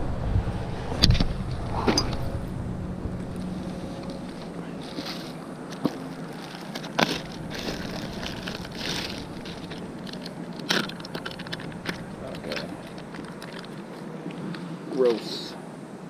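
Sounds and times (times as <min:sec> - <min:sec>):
plastic bag crinkling: 0:03.4 - 0:14.6.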